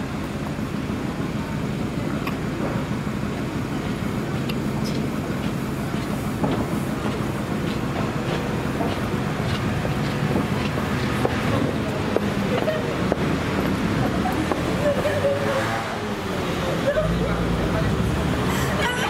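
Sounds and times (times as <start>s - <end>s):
street traffic rumble: 0.0s - 19.0s
vehicle engine humming: 0.0s - 19.0s.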